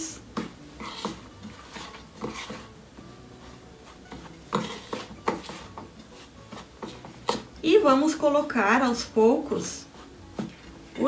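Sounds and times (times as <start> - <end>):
spoon scraping metal bowl: 0.4 - 2.8, 3.8 - 7.5.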